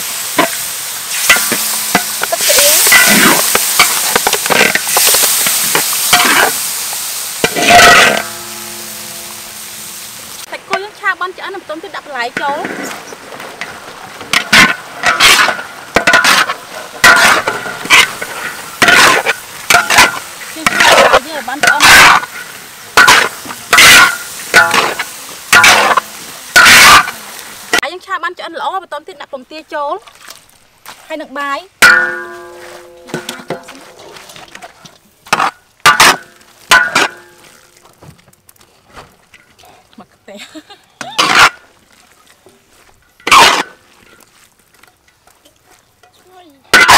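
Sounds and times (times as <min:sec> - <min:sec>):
metal spatula scraping a pan: 0:00.0 - 0:06.7, 0:07.4 - 0:09.9, 0:12.3 - 0:27.8, 0:31.8 - 0:37.5, 0:43.2 - 0:44.2
low sizzle: 0:00.0 - 0:46.9.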